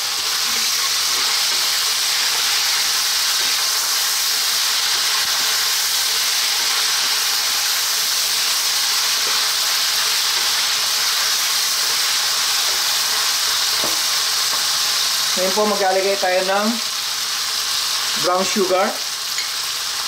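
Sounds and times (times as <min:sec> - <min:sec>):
spatula turning meat: 0:00.0 - 0:14.8
ribs sizzling in oil: 0:00.0 - 0:20.0.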